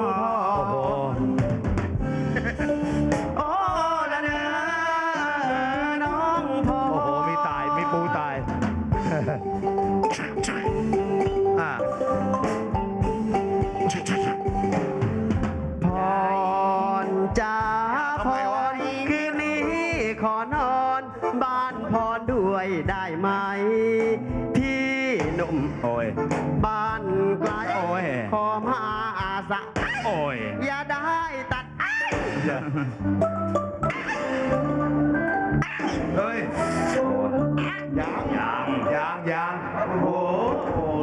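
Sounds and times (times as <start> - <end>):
live band playing: 0.0 - 39.4
drum hits: 8.4 - 16.0
person singing long bending notes: 26.6 - 31.8, 36.1 - 41.0.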